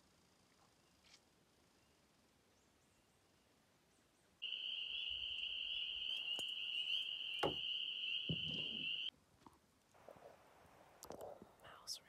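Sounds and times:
dull knocks: 7.4 - 7.6.

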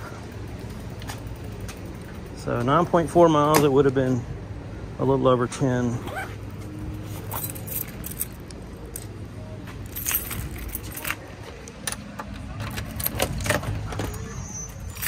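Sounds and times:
keys jangling against door lock: 7.2 - 9.1, 9.8 - 15.0.

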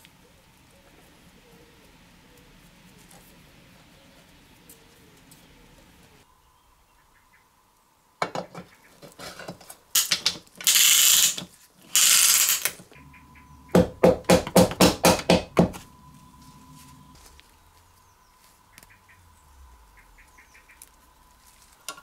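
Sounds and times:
metal clicks and scrapes: 9.0 - 12.9
loud hissing rasp: 9.2 - 12.8.

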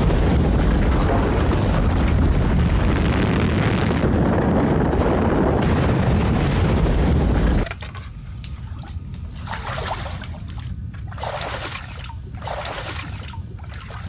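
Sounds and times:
explosion rumble: 0.0 - 7.6.

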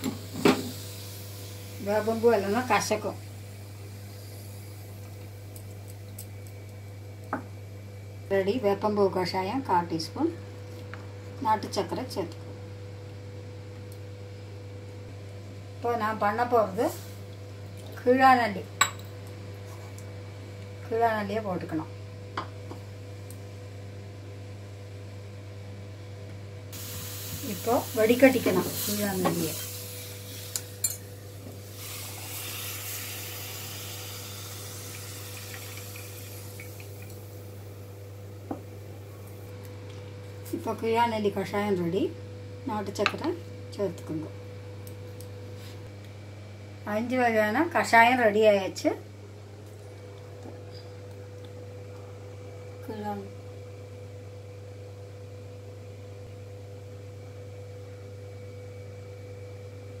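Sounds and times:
low electrical hum: 0.0 - 60.0
light hiss: 26.7 - 37.6.

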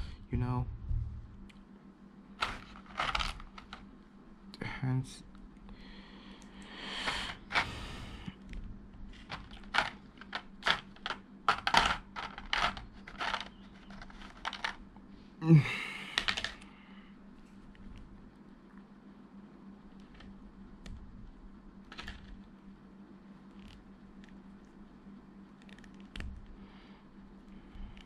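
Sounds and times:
plastic parts clicking: 2.4 - 3.8, 9.2 - 14.8, 16.2 - 16.7
plastic tray rustling: 2.4 - 3.8, 9.1 - 14.8.

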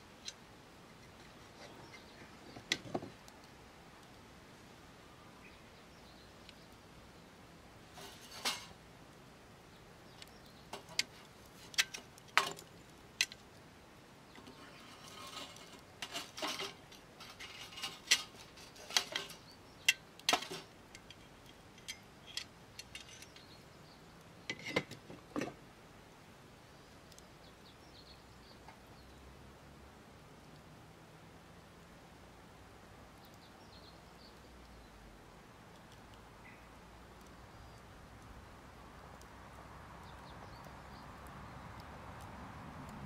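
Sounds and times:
metal tongs and wood knocking on stove: 8.0 - 8.8, 10.7 - 13.4, 14.4 - 21.2, 24.5 - 25.6.

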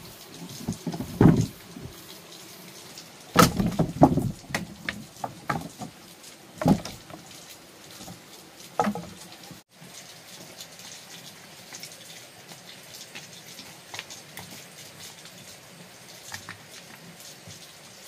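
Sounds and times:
hard objects knocking and clattering: 0.6 - 1.9, 3.4 - 6.0, 6.6 - 7.2, 8.8 - 9.2.

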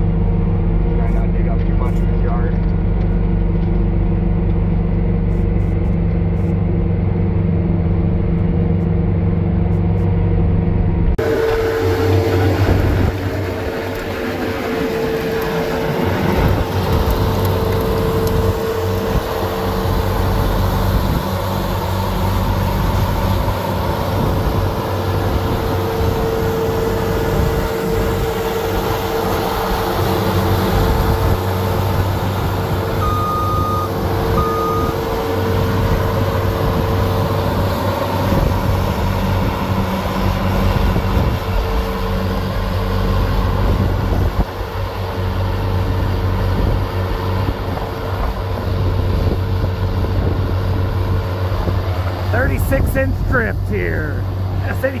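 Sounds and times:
diesel engine running: 0.0 - 55.0
snowblower whine: 0.0 - 55.0
short beeps: 33.0 - 35.0.

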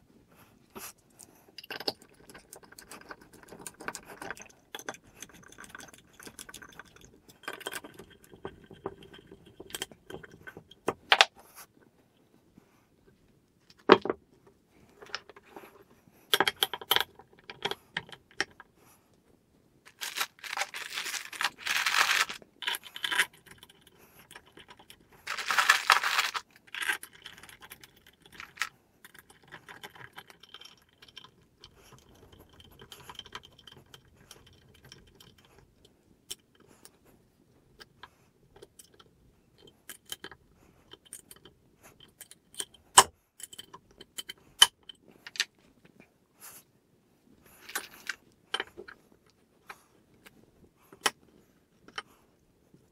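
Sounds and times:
metal parts clinking: 25.2 - 27.0.

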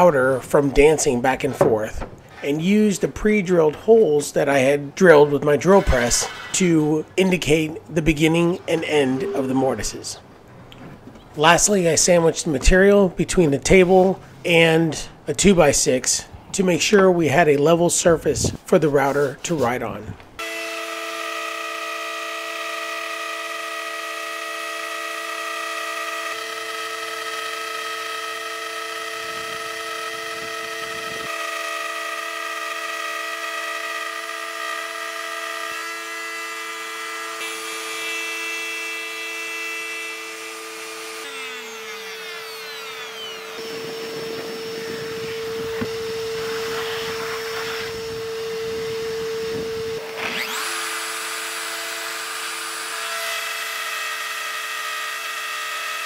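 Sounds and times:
router bit cutting wood: 2.3 - 9.9, 20.4 - 56.0
router motor whine: 20.4 - 56.0.

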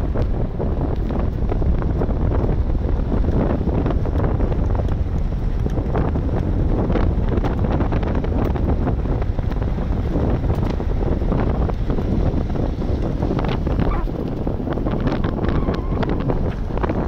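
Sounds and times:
vehicle rumble on dirt road: 0.0 - 17.0
wind buffeting microphone: 0.0 - 17.0.

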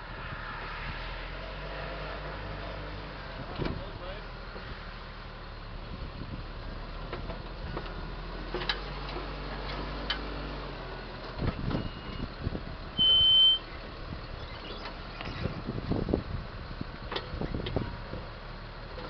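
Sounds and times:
tractor engine running: 3.3 - 19.0
high electronic beep: 13.0 - 13.7.

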